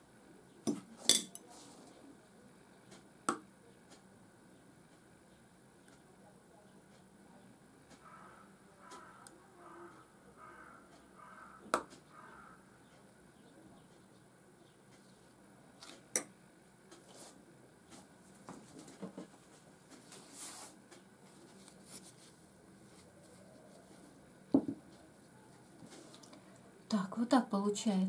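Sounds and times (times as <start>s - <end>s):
glassware clinking: 0.7s - 1.4s
soft knocks on table: 24.6s - 24.8s.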